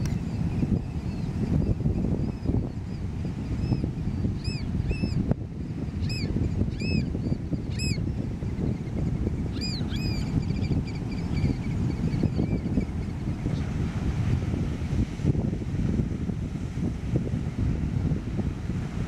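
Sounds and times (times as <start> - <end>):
wind rumble on microphone: 0.0 - 19.0
oystercatchers piping whistles: 4.4 - 5.2, 6.0 - 7.1, 7.7 - 8.0, 9.5 - 12.7.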